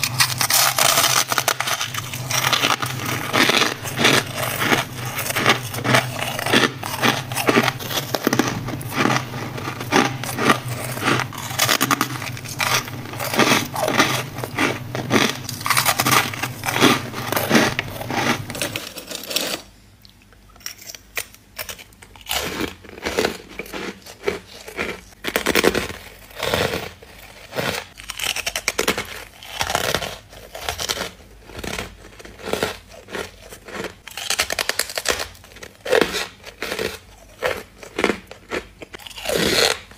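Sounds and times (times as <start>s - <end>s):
crunching frost in mouth: 0.0s - 19.6s
low steady hum: 0.0s - 20.4s.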